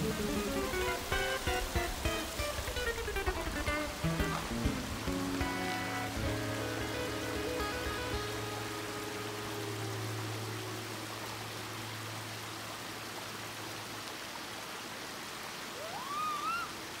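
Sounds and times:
background music: 0.0s - 12.4s
brook running over stones: 0.0s - 17.0s
rising wavering call: 5.8s - 12.2s, 15.8s - 16.8s.

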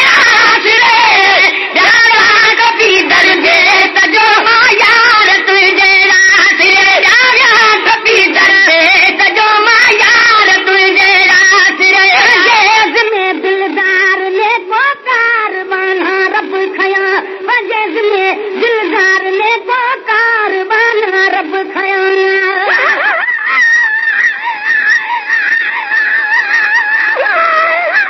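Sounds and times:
men singing devotional song: 0.0s - 13.6s.

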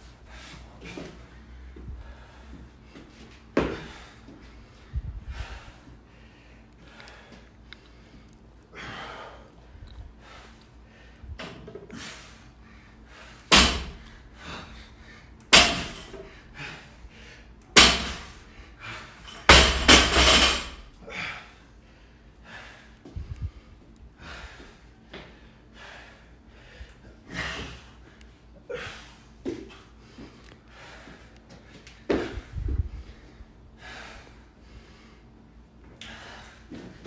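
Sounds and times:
barbell bouncing: 15.5s - 16.2s, 19.4s - 20.8s.

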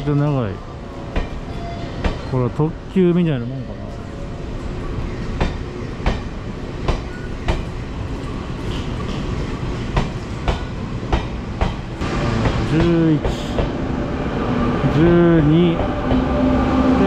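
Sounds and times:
train rumble: 3.8s - 17.0s
train wheels clickety-clack: 5.2s - 13.8s.

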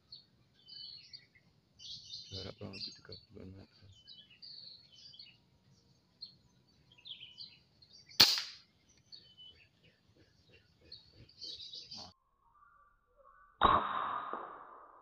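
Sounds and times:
small birds chirping: 0.0s - 13.6s
air rifle shot: 8.2s - 8.6s, 13.6s - 15.0s.

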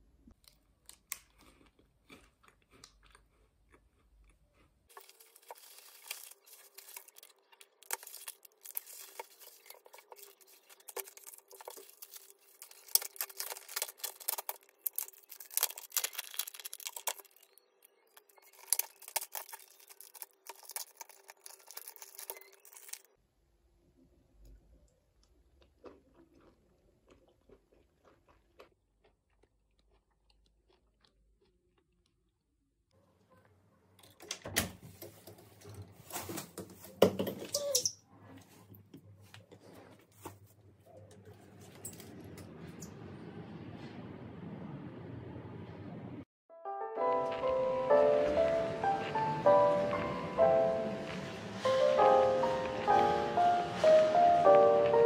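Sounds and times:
plastic food wrapping crinkling: 0.4s - 23.1s.

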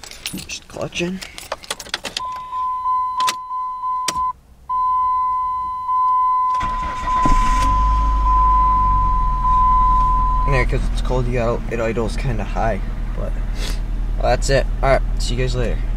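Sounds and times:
car engine starting and idling: 0.0s - 15.9s
dashboard warning tone: 2.2s - 10.8s.

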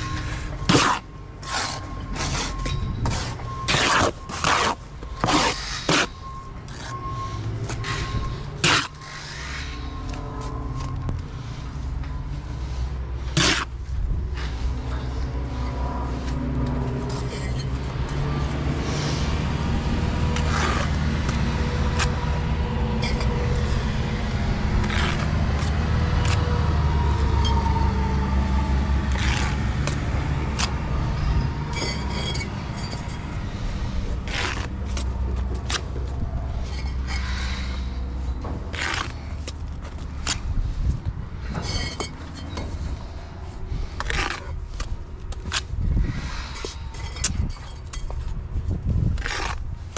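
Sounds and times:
trowel scraping mortar: 0.2s - 2.5s, 3.1s - 6.9s, 7.7s - 10.5s, 12.6s - 16.4s, 17.0s - 18.2s, 20.3s - 22.4s, 23.0s - 24.0s, 24.6s - 26.5s, 29.1s - 36.0s, 49.0s - 49.9s.

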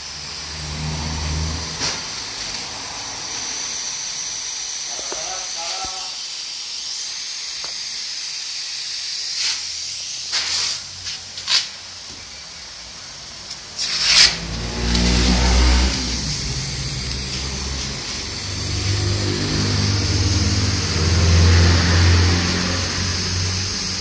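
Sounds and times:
van engine starting and running: 0.0s - 6.1s, 8.8s - 24.0s
hiss: 0.0s - 24.0s
short hissing bursts: 0.0s - 24.0s.

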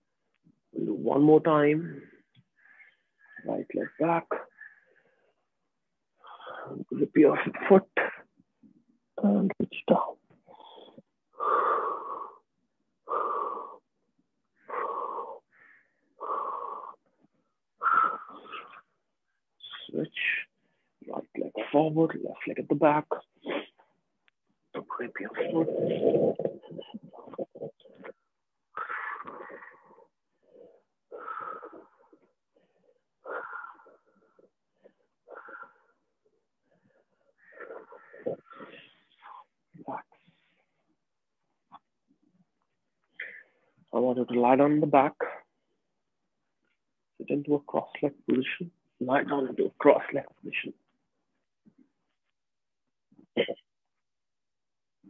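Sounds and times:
man breathing deeply: 14.6s - 17.1s, 17.8s - 19.0s, 28.7s - 39.6s.

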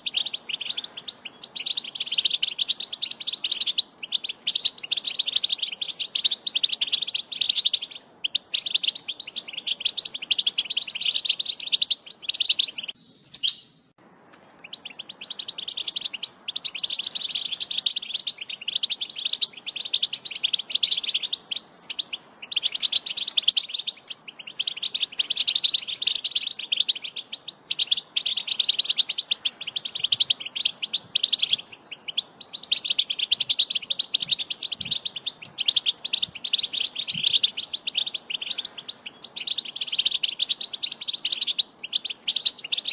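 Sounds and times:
goldfinch song: 0.0s - 42.9s.

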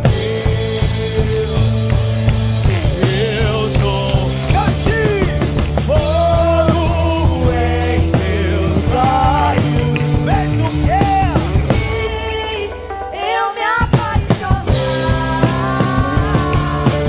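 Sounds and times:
drum kit steady beat: 0.0s - 12.6s, 13.8s - 17.0s
band playing: 0.0s - 17.0s
woman singing: 11.8s - 17.0s.

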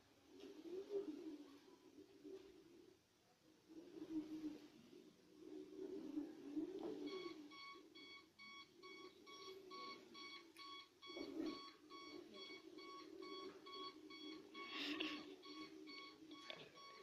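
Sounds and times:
faint low hum: 0.0s - 17.0s
rapid electronic warning beeps: 6.9s - 17.0s.

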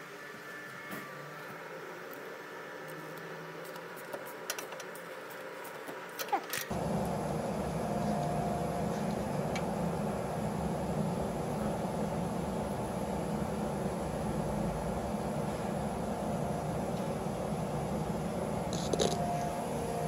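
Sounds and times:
mechanical running noise: 0.0s - 20.0s.

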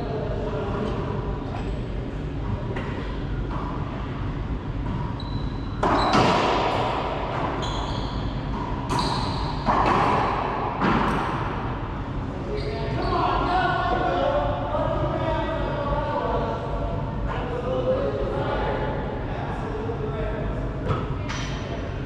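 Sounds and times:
ball smacking against court walls: 5.8s - 7.6s, 8.5s - 11.4s.

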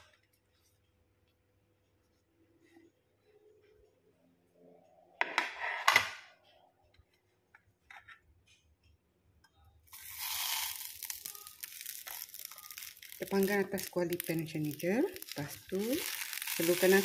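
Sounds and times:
leaves rustling and crackling: 10.0s - 17.0s.

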